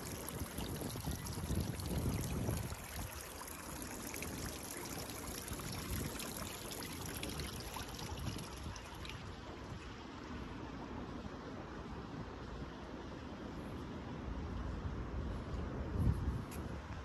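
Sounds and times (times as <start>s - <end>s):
water trickling in stone feature: 0.0s - 10.1s.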